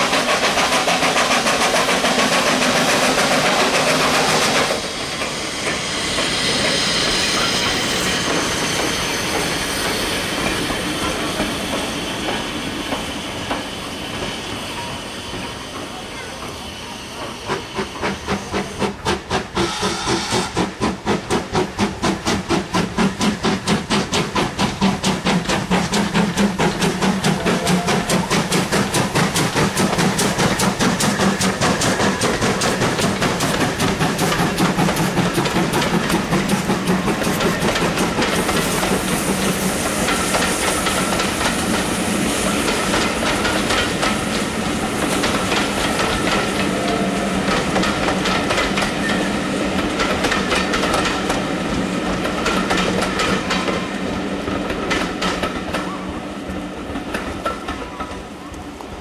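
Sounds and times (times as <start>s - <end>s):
steam hissing: 0.0s - 57.6s
steam engine exhaust beats: 17.2s - 53.7s.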